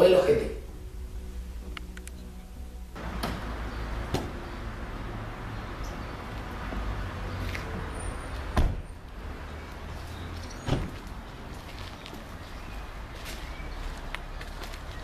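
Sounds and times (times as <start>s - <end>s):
loud thump: 8.6s - 8.9s, 10.6s - 11.0s.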